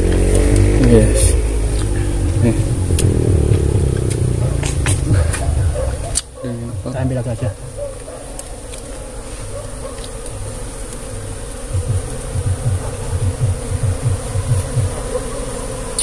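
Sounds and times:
low rapid thumps: 0.0s - 7.8s, 11.6s - 15.1s
bees buzzing: 0.0s - 16.0s.

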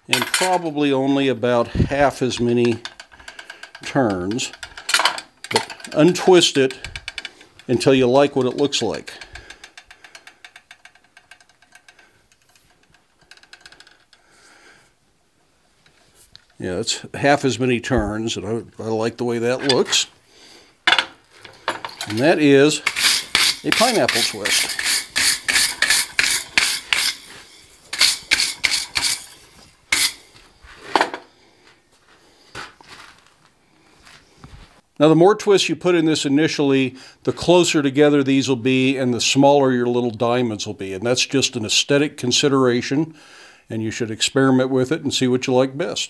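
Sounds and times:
wire brush scrubbing iron: 22.0s - 30.3s
metal bar clicking in vise: 22.8s - 27.2s, 27.9s - 29.3s.

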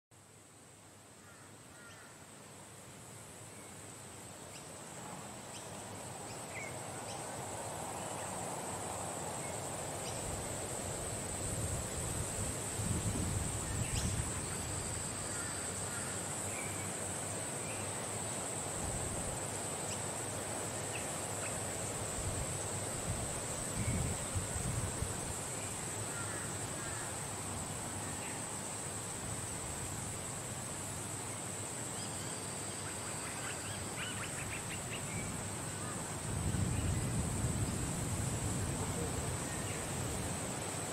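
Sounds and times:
steady high-pitched hiss: 0.1s - 40.9s
wind rumbling on microphone: 7.3s - 15.5s, 22.0s - 26.4s, 34.4s - 40.9s.

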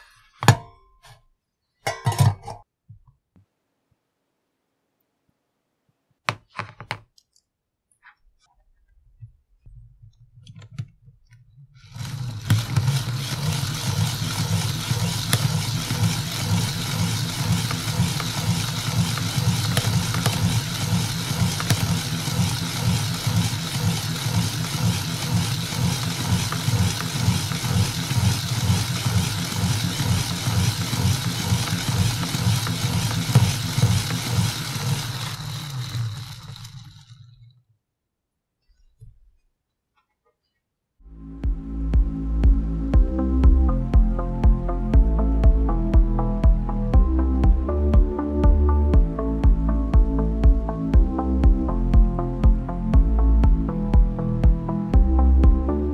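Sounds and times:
gear train rattling whir: 11.8s - 37.5s.

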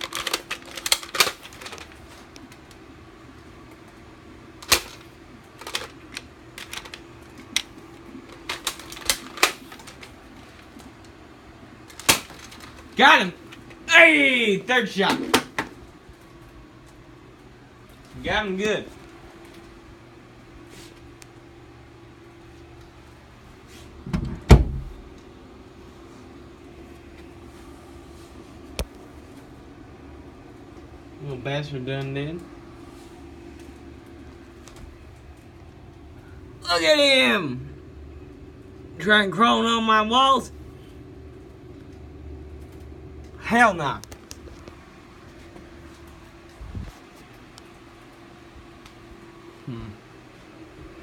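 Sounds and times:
low steady hum: 0.0s - 51.0s
toy gun clicks and snaps: 4.6s - 5.0s.

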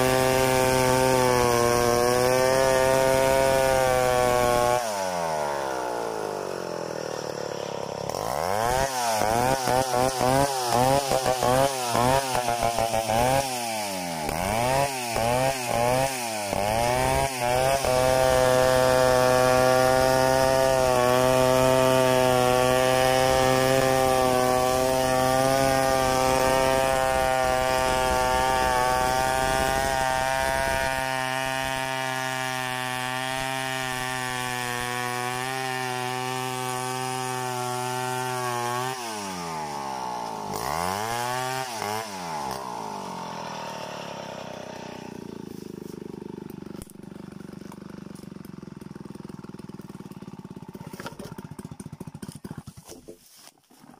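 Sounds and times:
chainsaw revving: 0.0s - 53.9s
chain ripping through log: 45.6s - 53.9s.

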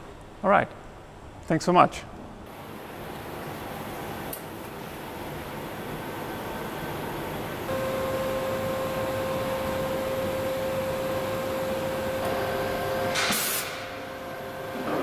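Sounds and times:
welding machine whine: 2.7s - 15.0s
hiss burst: 13.1s - 13.9s.

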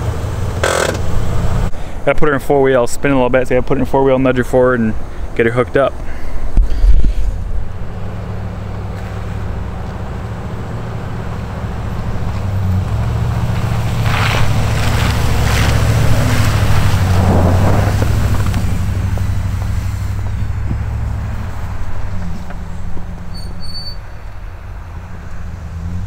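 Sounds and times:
truck engine humming: 0.0s - 26.0s
plow blade scraping snow: 6.1s - 24.0s.

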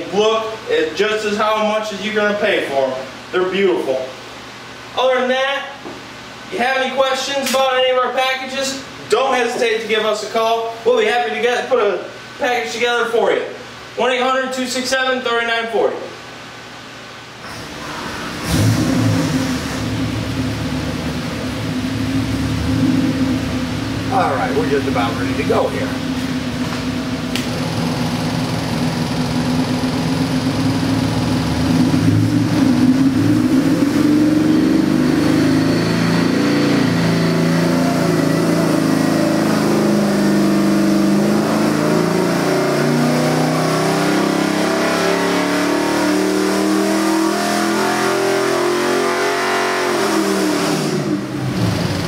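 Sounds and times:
engine revving on a dynamometer: 17.4s - 26.0s, 27.2s - 52.0s.

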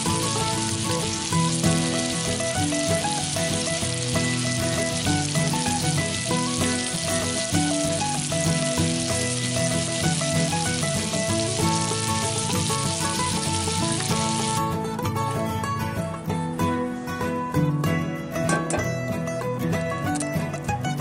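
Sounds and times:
sausage sizzling in fat: 0.0s - 14.8s
background music: 0.0s - 21.0s.

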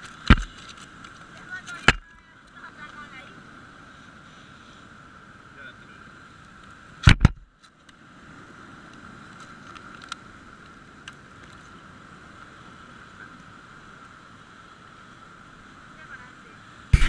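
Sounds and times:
surf on rocks: 0.0s - 17.0s
loud knocks: 7.0s - 7.4s.

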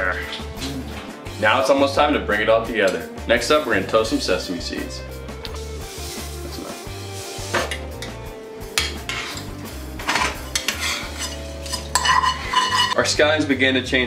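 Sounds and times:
metal spoon scraping a pan: 8.8s - 13.1s.

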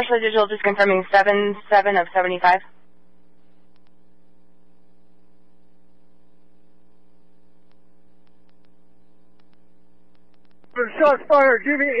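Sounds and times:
electrical hum with hiss: 0.0s - 12.0s
faint clicks: 3.3s - 4.0s, 7.6s - 10.8s.

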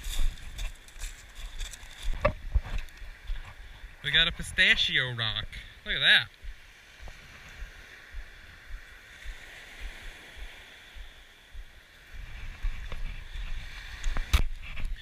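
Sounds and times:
waves washing onto pebbles: 5.9s - 15.0s
wind buffeting microphone: 6.4s - 15.0s.

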